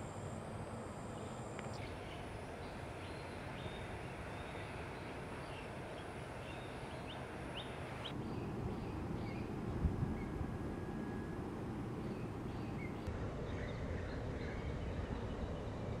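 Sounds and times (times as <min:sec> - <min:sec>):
low rumble of background noise: 0:00.0 - 0:16.0
small birds chirping: 0:01.0 - 0:09.6, 0:12.0 - 0:15.8.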